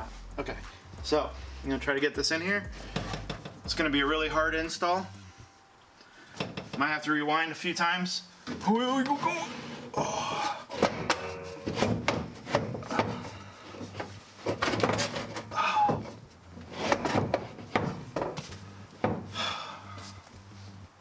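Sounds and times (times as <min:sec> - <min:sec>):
knocks: 0:10.8 - 0:13.2
plastic console scraping and rubbing: 0:11.7 - 0:15.5, 0:16.6 - 0:18.6.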